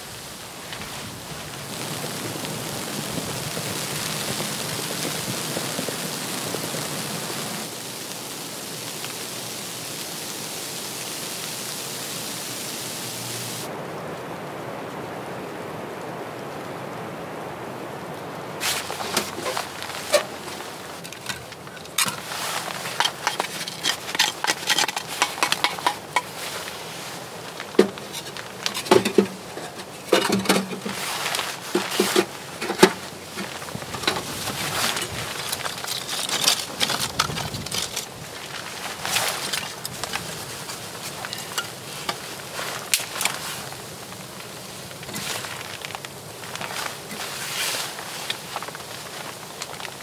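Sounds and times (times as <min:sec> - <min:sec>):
kindling sticks clattering in stove: 0:18.6 - 0:43.8.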